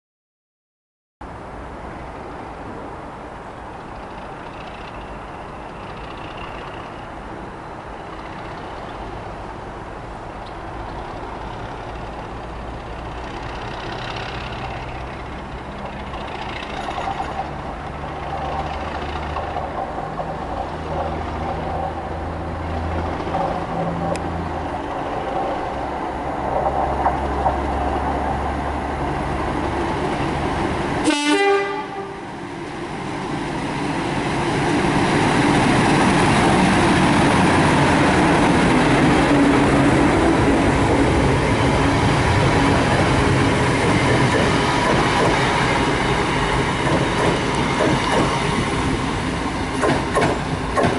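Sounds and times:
diesel locomotive engine rumbling: 0:01.2 - 0:50.9
locomotive horn: 0:31.0 - 0:32.3.

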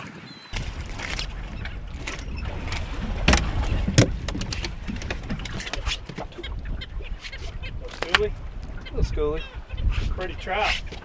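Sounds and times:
wind rumbling on microphone: 0:00.0 - 0:11.0
fishing gear knocking on boat deck: 0:03.2 - 0:06.2.

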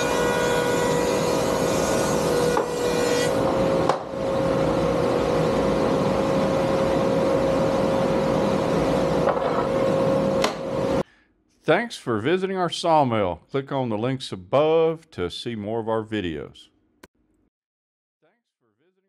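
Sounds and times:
thickness planer humming: 0:00.0 - 0:11.0.

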